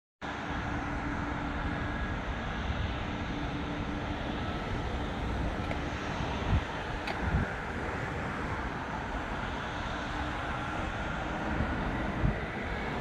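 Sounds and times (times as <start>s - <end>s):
distant jet engines rushing: 0.2s - 13.0s.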